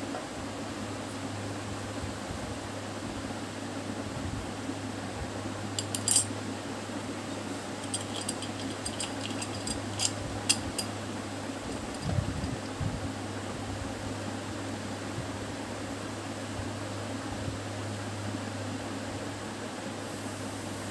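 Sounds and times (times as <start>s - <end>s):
steady hum: 0.0s - 20.9s.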